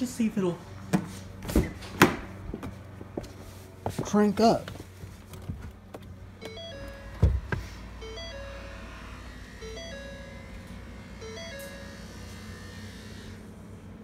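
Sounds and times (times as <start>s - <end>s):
steady low hum: 0.0s - 14.0s
dashboard chime: 6.4s - 12.2s.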